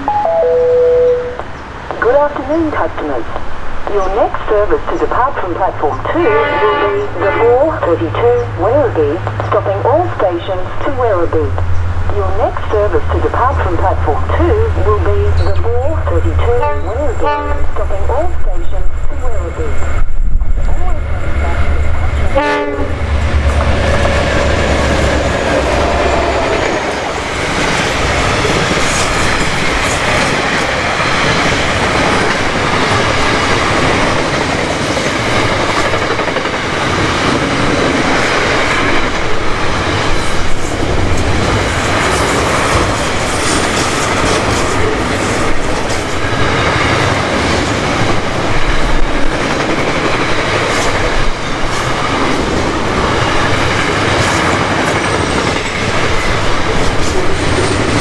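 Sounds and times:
diesel locomotive engine: 0.0 - 58.0
wagons rumbling on rails: 0.0 - 58.0.

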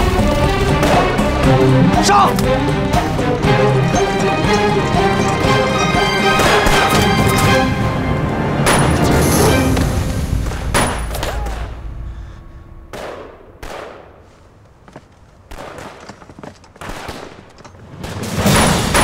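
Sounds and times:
pistol shots: 12.9 - 14.2, 15.5 - 19.0.

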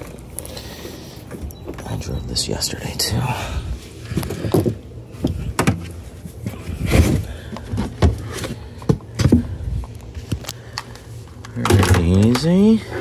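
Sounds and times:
knocks and thuds of handling: 4.2 - 9.6, 11.6 - 12.6.

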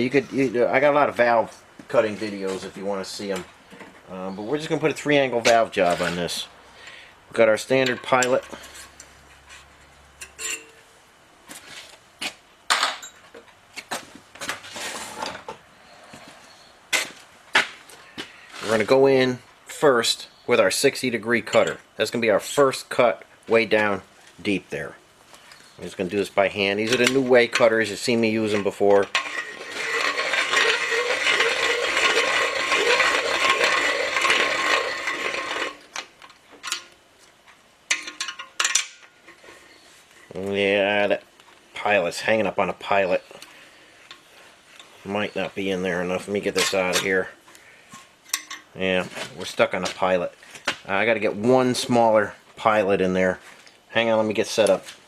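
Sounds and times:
scraping rattle: 26.8 - 35.8.

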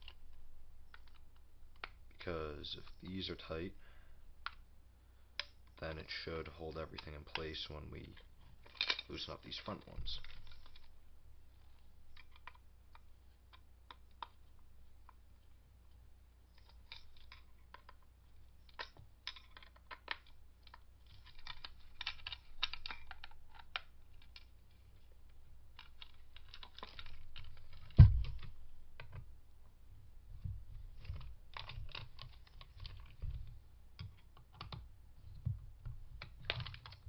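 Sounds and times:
metal case turned in hand: 6.8 - 11.0, 16.5 - 25.1, 25.7 - 29.2
thud: 27.9 - 28.4.

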